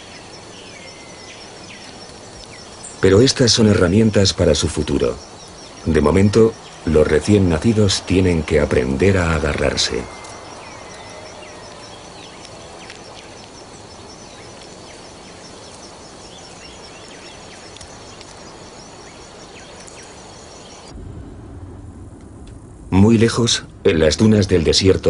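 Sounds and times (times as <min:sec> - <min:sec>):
insect chirping: 0:00.0 - 0:25.0
soft hiss: 0:00.0 - 0:25.0
low rumbling noise: 0:20.2 - 0:25.0.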